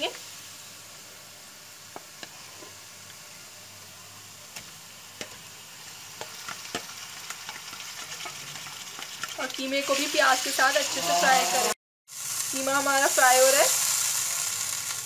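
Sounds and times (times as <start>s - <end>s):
meat sizzling in hot oil: 0.0s - 15.0s
spatula clicking and scraping pan: 6.2s - 9.4s.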